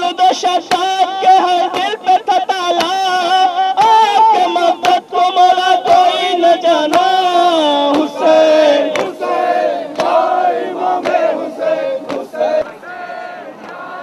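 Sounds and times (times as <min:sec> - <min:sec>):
man chanting into a microphone: 0:00.0 - 0:09.2
chest beating slaps: 0:07.9 - 0:08.2, 0:08.9 - 0:09.2, 0:09.9 - 0:10.2.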